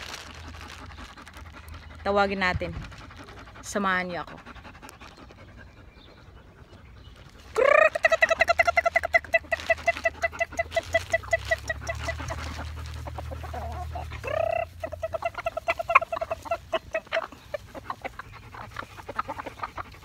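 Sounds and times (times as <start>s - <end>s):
person calling chickens: 7.4s - 20.0s.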